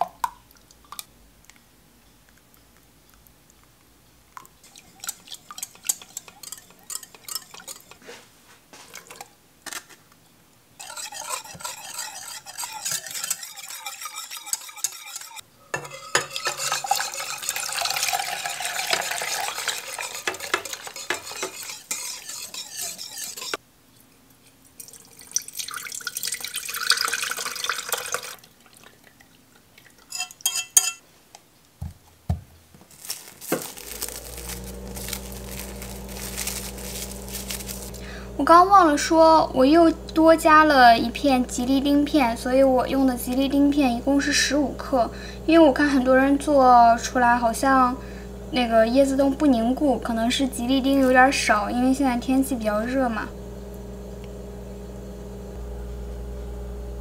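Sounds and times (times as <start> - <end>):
spoon scraping in dish: 4.6 - 8.2, 10.8 - 23.6, 30.1 - 31.0, 33.1 - 38.0, 50.3 - 51.5
spoon clinks: 30.1 - 31.0
steady low hum: 33.6 - 57.0.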